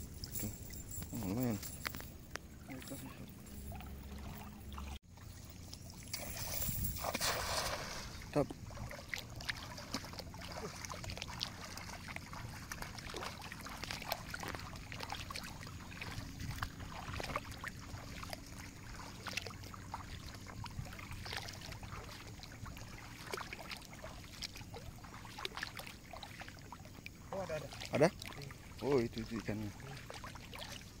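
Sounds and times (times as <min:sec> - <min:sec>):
person wading through water: 0:00.0 - 0:31.0
cast net landing on water: 0:06.1 - 0:08.4.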